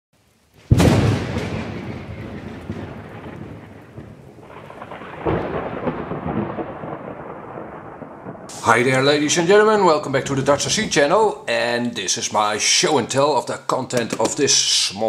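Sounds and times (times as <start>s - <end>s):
thunder crash: 0.6s - 11.2s.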